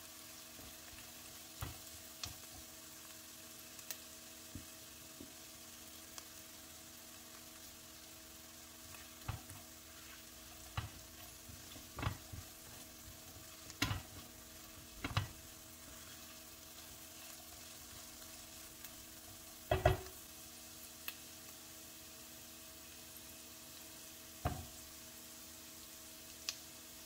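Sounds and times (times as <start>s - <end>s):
vegetables sizzling in oil: 0.0s - 27.0s
spatula stirring in pot: 8.7s - 18.3s.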